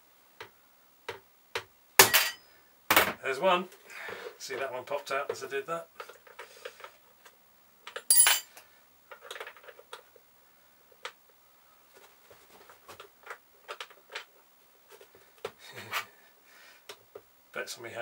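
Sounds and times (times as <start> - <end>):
metallic clink: 8.1 - 8.5.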